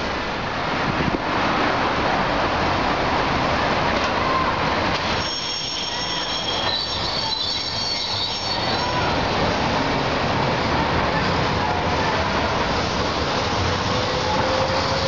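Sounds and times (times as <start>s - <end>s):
street traffic noise: 0.0s - 15.0s
streetcar wheels squealing on rails: 3.8s - 15.0s.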